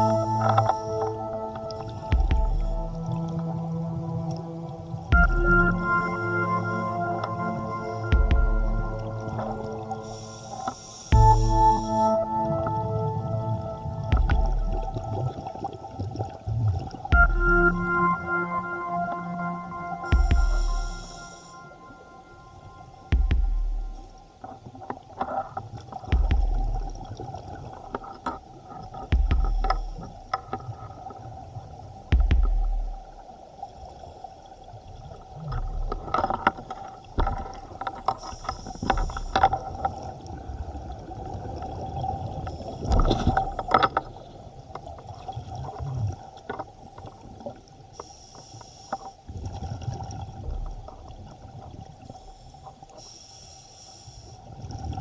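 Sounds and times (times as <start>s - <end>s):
steady faint tone: 0.0s - 25.2s
underwater bubbles gurgling: 0.0s - 55.0s.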